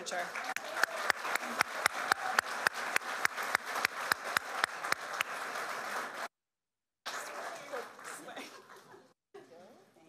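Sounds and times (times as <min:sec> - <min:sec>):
audience applauding: 0:00.0 - 0:06.3, 0:07.1 - 0:08.9.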